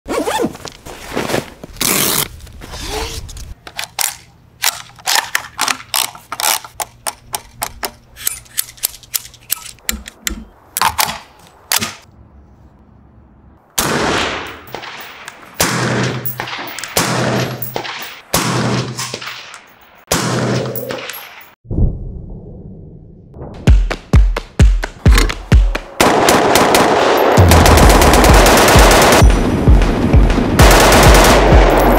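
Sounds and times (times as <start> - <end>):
loud rifle shots: 26.0 - 31.9.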